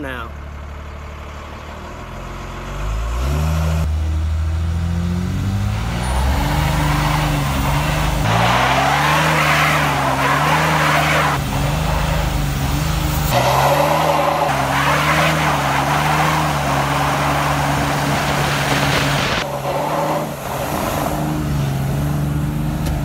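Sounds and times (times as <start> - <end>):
diesel engine revving high: 0.0 - 23.0
tyres screeching in a burnout: 5.8 - 21.9.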